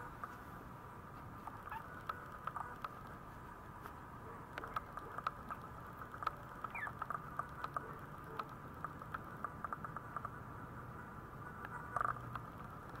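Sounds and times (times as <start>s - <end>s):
small irregular clicks: 1.1s - 10.6s, 11.5s - 13.0s
puppy squeaking: 1.6s - 2.8s, 6.6s - 7.0s.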